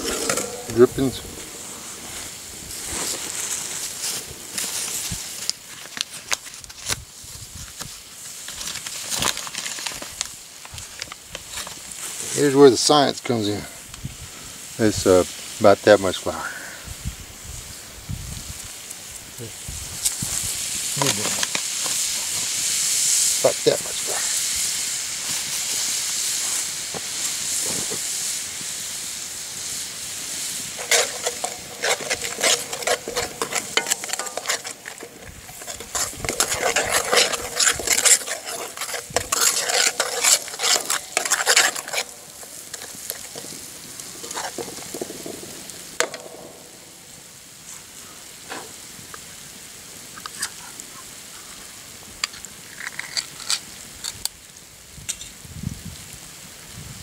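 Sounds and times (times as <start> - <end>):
metal spoon scraping pan: 0.0 - 2.3, 30.7 - 43.6, 44.2 - 45.0
flour sizzling in fat: 0.0 - 55.4.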